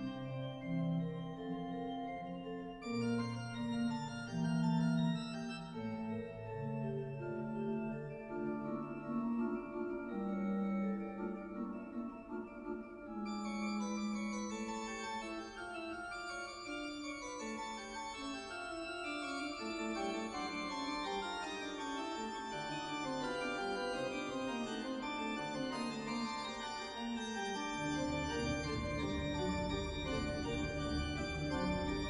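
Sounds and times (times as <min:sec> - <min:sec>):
organ chords: 0:00.0 - 0:32.0.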